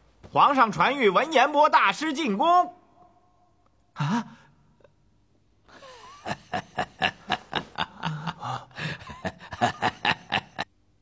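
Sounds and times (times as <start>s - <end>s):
person laughing: 5.7s - 10.7s.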